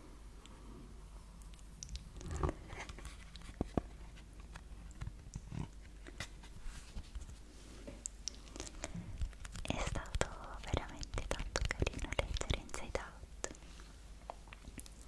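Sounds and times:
fingers tapping cardboard book: 8.6s - 12.7s.

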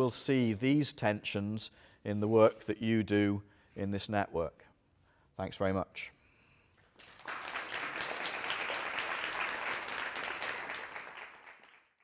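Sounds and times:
audience applauding: 7.0s - 12.0s.

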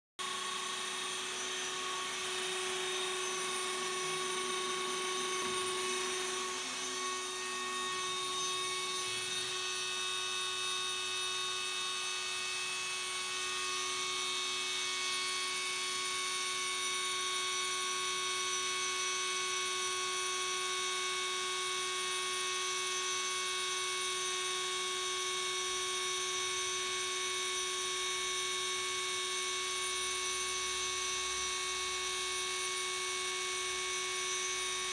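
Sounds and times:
milling spindle high whine: 0.2s - 20.6s, 21.2s - 34.9s.

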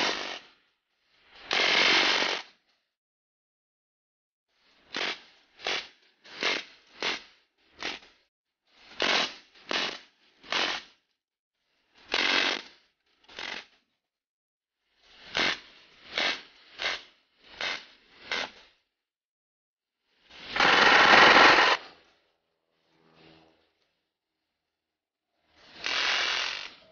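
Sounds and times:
bb gun firing bursts: 20.6s - 21.8s.

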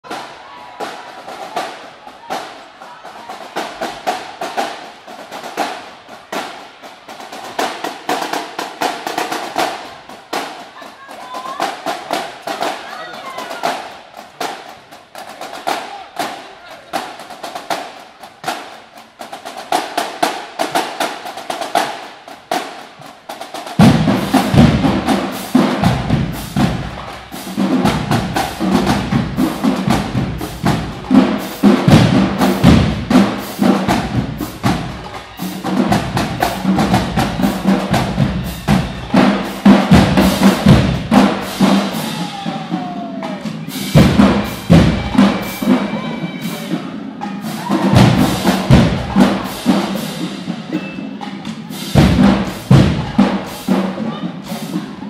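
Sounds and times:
snare drum rolls: 0.0s - 55.0s
bass drums: 23.8s - 45.6s, 47.6s - 50.3s, 51.9s - 53.5s.

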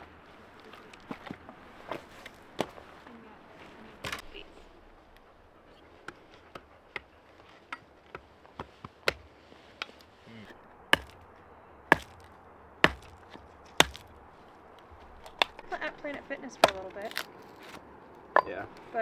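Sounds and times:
hatchet chopping wood: 7.7s - 9.3s, 10.9s - 11.2s, 11.9s - 14.2s, 16.5s - 17.3s.

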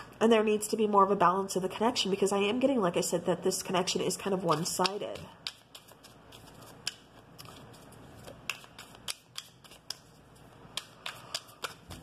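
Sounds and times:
cards being shuffled by hand: 4.4s - 12.0s.

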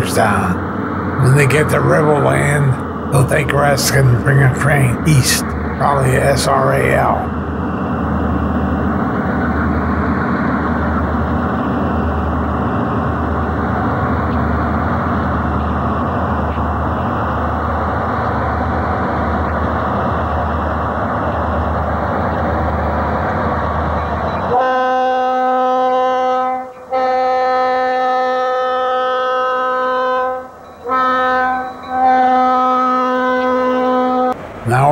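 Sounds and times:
diesel locomotives rumbling: 0.0s - 34.9s
locomotive air horn chord: 24.5s - 34.4s.

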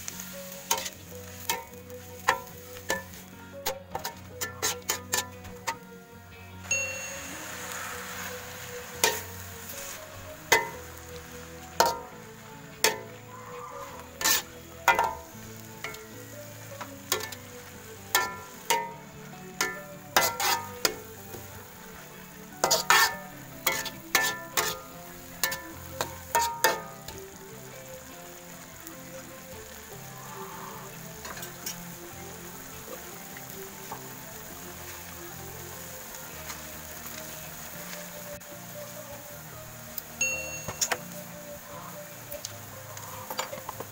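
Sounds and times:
food sizzling: 0.0s - 43.9s
metal spatula clanking on wok: 0.6s - 5.8s, 9.0s - 9.3s, 10.5s - 10.8s, 11.8s - 12.1s, 12.8s - 13.2s, 14.2s - 16.1s, 16.8s - 17.4s, 18.1s - 19.0s, 19.6s - 21.1s, 22.6s - 27.2s.

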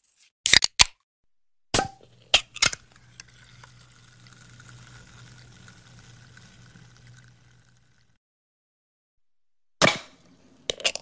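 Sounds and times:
drink fizzing: 1.9s - 8.2s.

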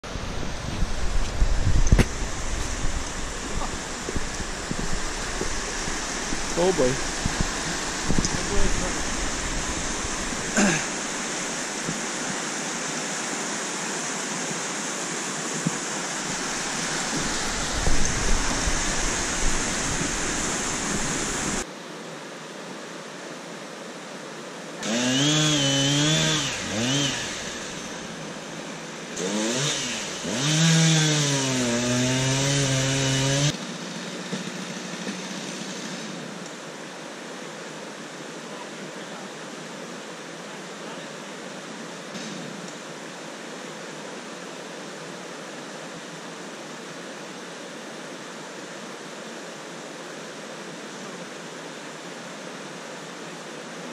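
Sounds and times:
river rapids rushing: 0.0s - 53.9s
chainsaw revving and cutting: 4.0s - 11.9s, 24.8s - 28.3s, 29.2s - 36.4s, 42.2s - 42.6s.

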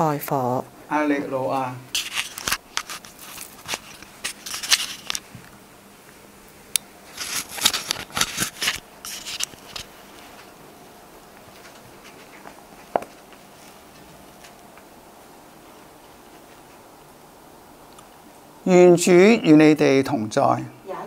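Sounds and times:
clothing and book rustling: 1.9s - 5.4s, 7.0s - 10.6s, 11.4s - 14.8s.

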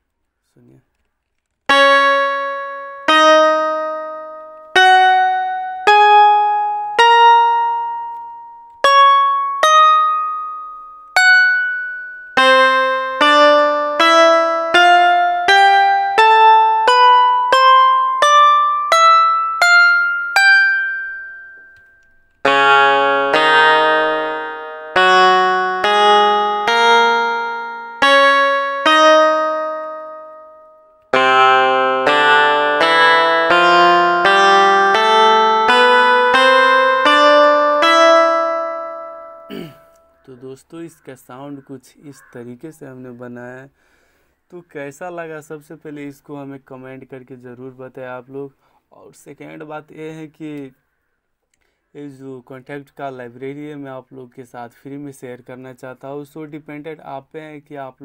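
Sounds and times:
plucked banjo notes: 1.7s - 42.4s.

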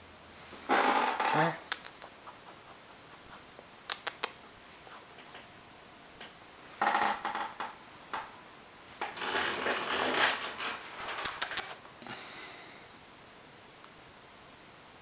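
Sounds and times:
sharp clicks: 1.7s - 2.2s, 3.8s - 4.4s, 11.2s - 11.8s.

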